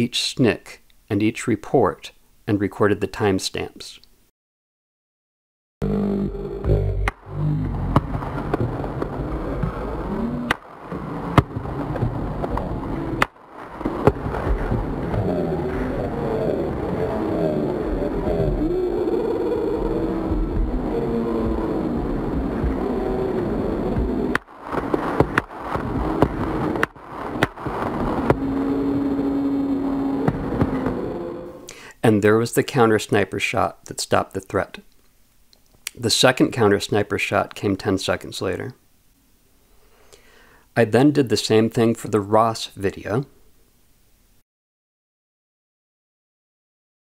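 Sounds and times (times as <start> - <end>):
low steady tone: 5.8 - 10.5, 27.8 - 31.7
slowed crowd noise: 6.0 - 31.7.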